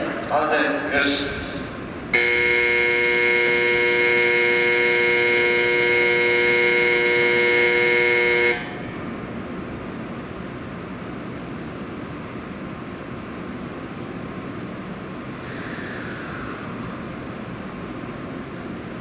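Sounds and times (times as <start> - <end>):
electronic warning tone: 2.2 - 8.9.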